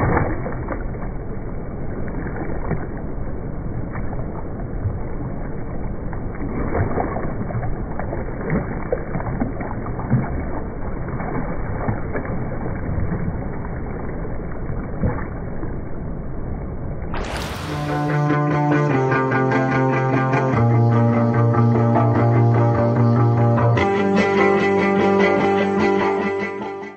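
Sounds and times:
water splashing and gurgling: 0.0s - 26.8s
music: 17.7s - 26.9s.

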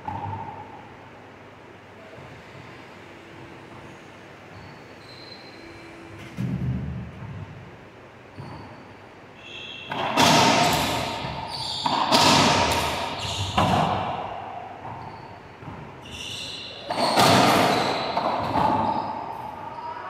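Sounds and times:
shoes squeaking on hardwood: 8.3s - 8.9s
ball strikes with echo: 9.5s - 16.0s.

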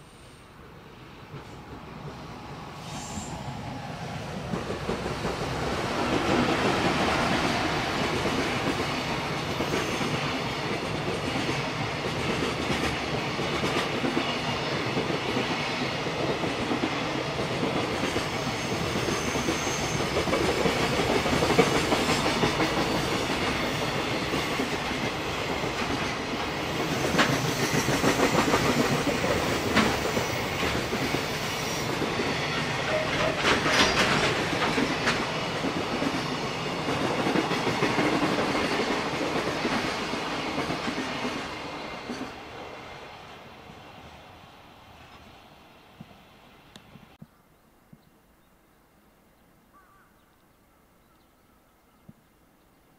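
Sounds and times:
train wheels rumbling: 0.0s - 47.2s
clickety-clack over rail joints: 4.0s - 43.0s.

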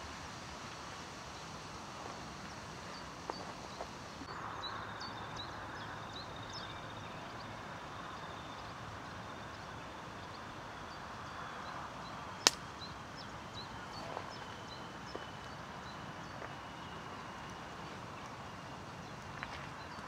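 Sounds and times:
faint background noise: 0.0s - 20.0s.

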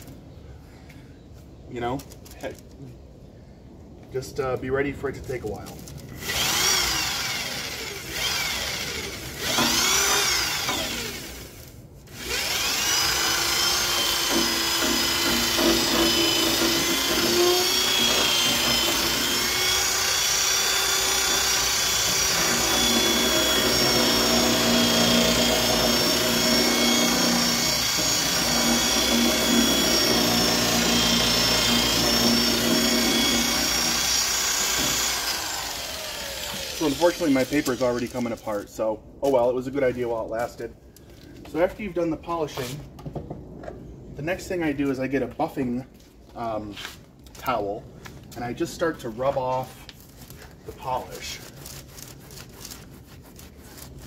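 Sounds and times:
power drill motor whining: 6.1s - 38.5s.

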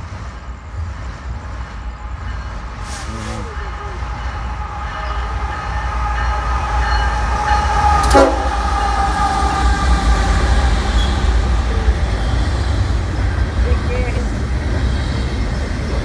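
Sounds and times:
freight locomotives rumbling past: 0.0s - 16.0s
train air horn chord: 5.0s - 10.5s.

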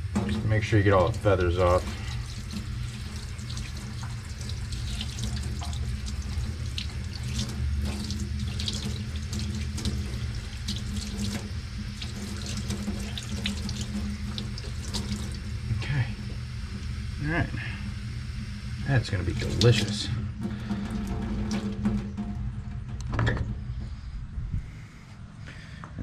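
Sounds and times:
hands rubbing and rinsing meat: 0.0s - 15.4s
tap water running into sink: 0.0s - 15.6s, 18.9s - 22.4s
low steady hum: 0.0s - 26.0s.

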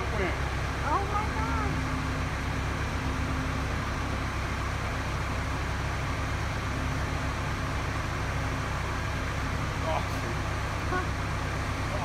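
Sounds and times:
boom lift engine rumbling: 0.0s - 12.0s
faint hum: 0.0s - 12.0s.

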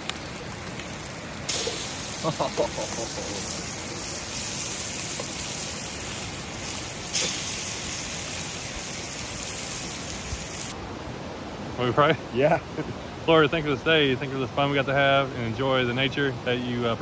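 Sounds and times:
fish sizzling in hot oil: 0.0s - 10.8s.

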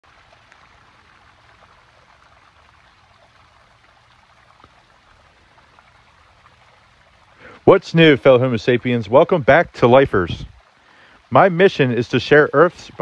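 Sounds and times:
stream splashing over rocks: 0.0s - 13.0s.

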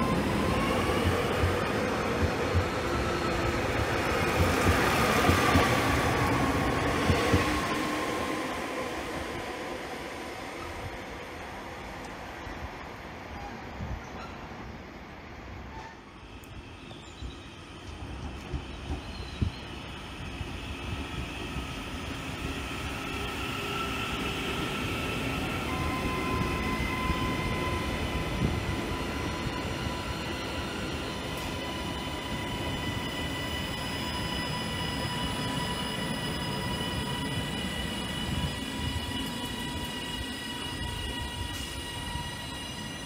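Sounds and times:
train wheels rumbling on rails: 0.0s - 11.4s, 15.5s - 43.0s.

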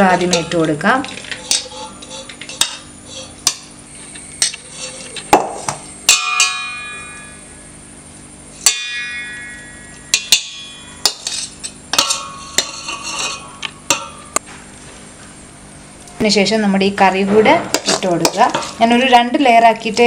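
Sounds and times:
spoon scraping steel pots: 0.1s - 5.3s, 11.0s - 14.2s, 17.7s - 19.1s
steel pot ringing strikes: 6.0s - 7.8s, 8.6s - 14.4s.

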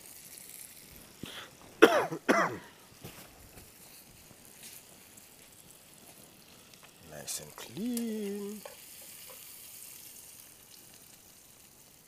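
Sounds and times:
person coughing: 1.3s - 2.8s.

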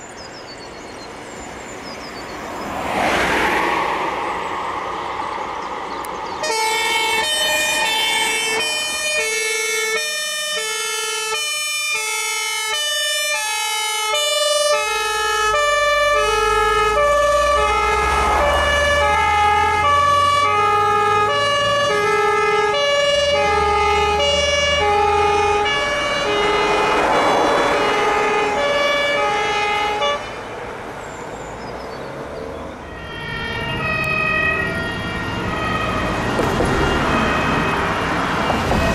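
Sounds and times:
truck engine rumbling: 0.0s - 38.9s
two-tone fire engine siren: 6.1s - 30.5s, 32.7s - 38.9s.

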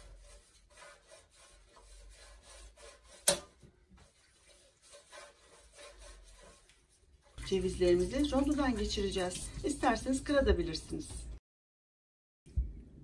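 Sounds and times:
brush rubbing on metal tray: 0.0s - 3.4s, 4.0s - 10.3s.

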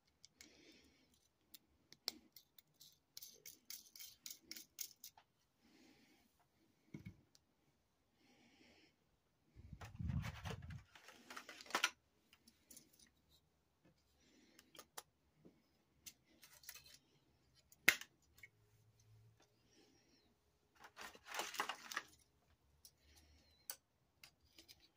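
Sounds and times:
plastic packaging clicks and rustles: 9.8s - 13.1s, 20.8s - 22.4s.

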